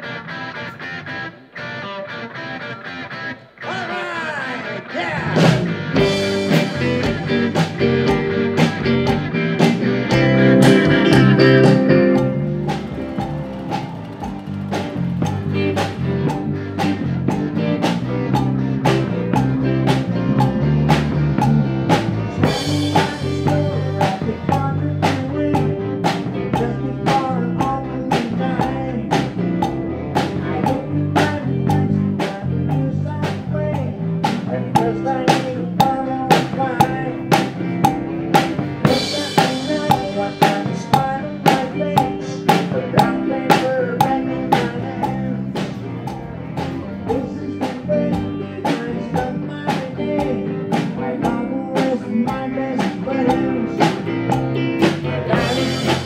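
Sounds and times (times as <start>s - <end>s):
electric guitar: 0.0s - 56.0s
drum kit steady beat: 5.4s - 56.0s.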